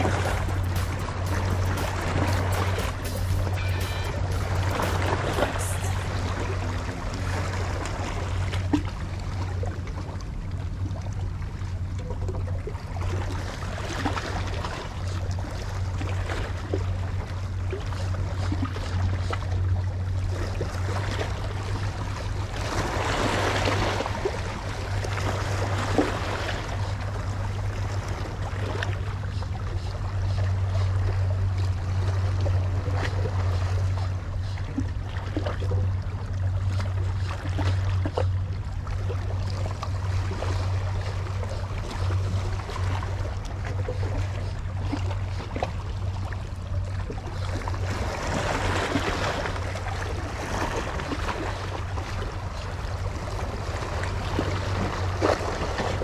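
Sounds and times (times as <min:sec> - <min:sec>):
waves washing against rocks: 0:00.0 - 0:06.6
low rumble: 0:00.0 - 0:12.9.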